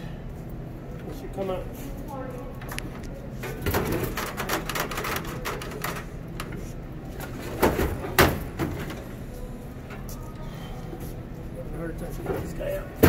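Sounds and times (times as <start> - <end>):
knocks and clatter of rollers: 2.6 - 9.1.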